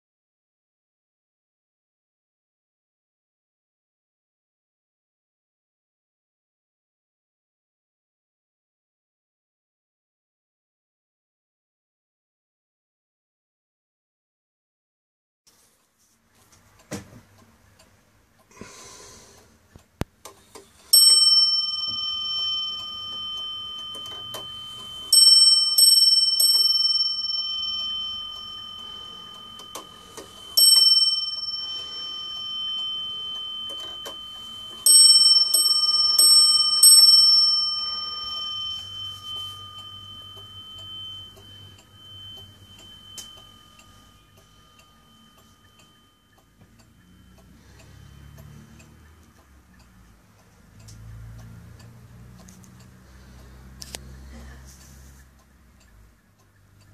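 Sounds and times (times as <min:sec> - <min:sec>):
clock ticking: 0:16.4 - 0:56.9
clock bell striking: 0:20.8 - 0:49.8.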